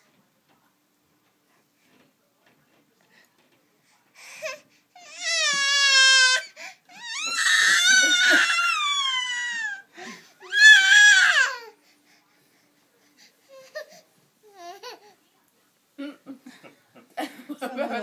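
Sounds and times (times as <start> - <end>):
baby crying: 4.4 - 11.8.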